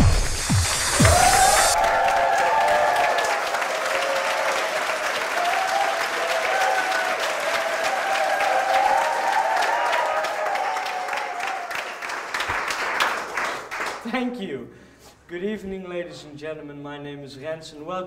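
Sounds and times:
audience applauding: 0.0s - 14.1s.

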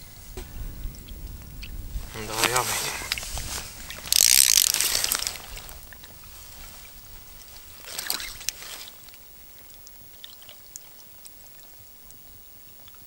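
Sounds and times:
fishing line spool whirring: 4.1s - 5.8s.

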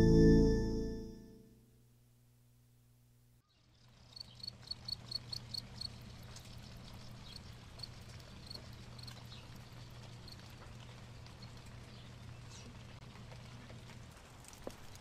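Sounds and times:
steady low hum: 0.0s - 1.2s
cricket chirping: 4.1s - 6.1s.

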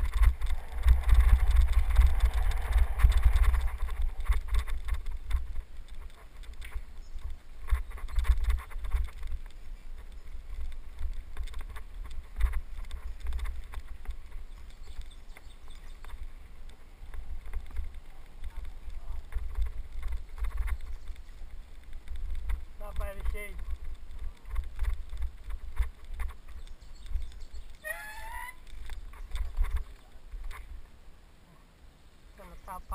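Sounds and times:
bike rattling: 0.0s - 30.9s
wind buffeting microphone: 0.0s - 30.9s
bicycle rolling on dirt trail: 0.0s - 31.3s.

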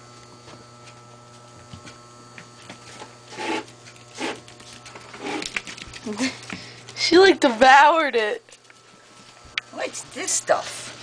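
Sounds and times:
steady low hum: 0.0s - 11.0s
short rasping scrapes: 3.3s - 4.4s, 5.1s - 5.5s.

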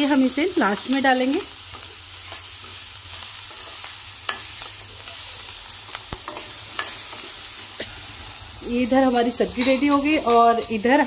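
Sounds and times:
vegetables sizzling in wok: 0.0s - 11.0s
metal spatula scraping and clinking: 6.1s - 7.4s.

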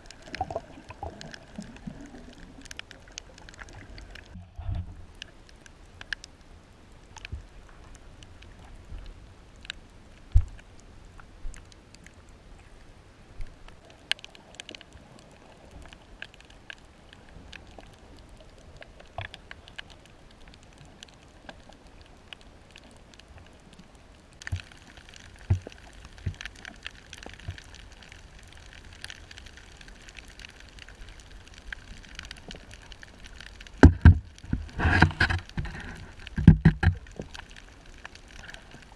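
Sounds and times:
underwater crackling: 0.0s - 6.4s, 13.4s - 38.9s
muffled underwater hiss: 0.0s - 38.9s
sharp underwater clicks: 24.4s - 38.9s.

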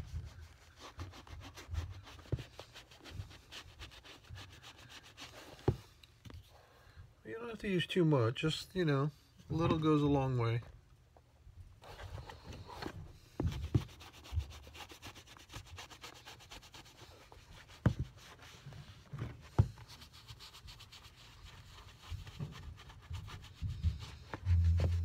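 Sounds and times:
sponge rubbing leather shoe: 0.0s - 5.8s, 13.4s - 25.0s.

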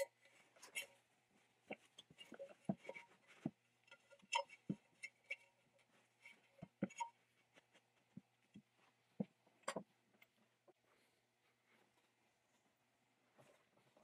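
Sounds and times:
rubber tire rubbing on metal rim: 2.0s - 7.5s.

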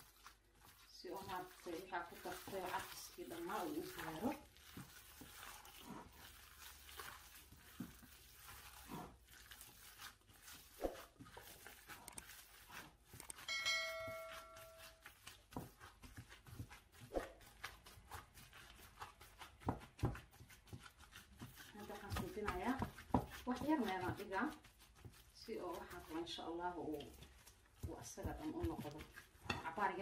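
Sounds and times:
minced meat squishing: 0.0s - 30.0s
notification chime: 13.5s - 14.9s.

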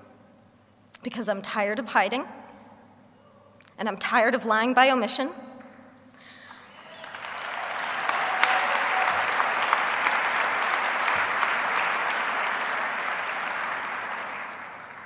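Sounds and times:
audience applauding: 6.4s - 15.0s.

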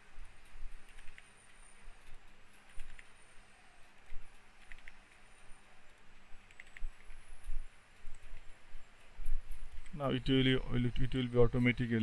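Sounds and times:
faint steady hum: 0.0s - 12.0s
mouse clicks: 0.1s - 3.2s, 3.8s - 8.5s
keyboard keystrokes: 4.0s - 5.2s, 5.9s - 7.2s.

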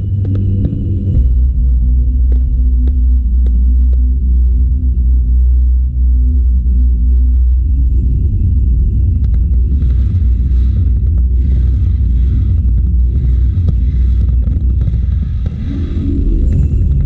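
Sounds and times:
fireworks deep rumble: 0.0s - 17.0s.

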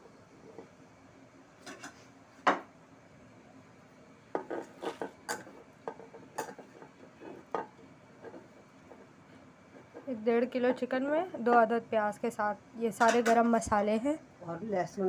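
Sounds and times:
utensils clinking on steel pot: 13.0s - 13.5s.

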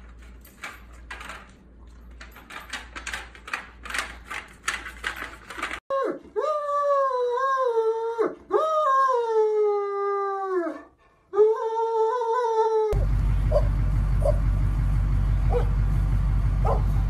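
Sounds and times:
dog howling: 5.9s - 14.4s.

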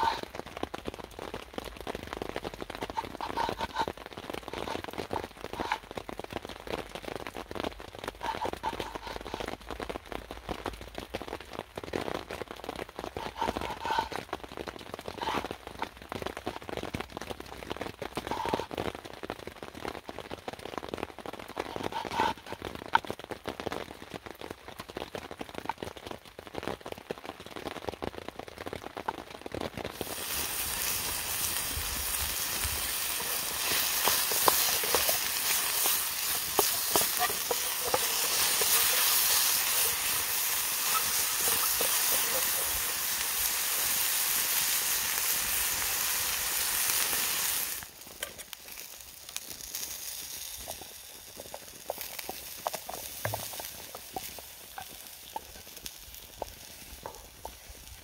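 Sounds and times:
steady hiss: 0.0s - 0.4s, 29.9s - 58.0s
rain dripping in woodland: 0.0s - 58.0s.

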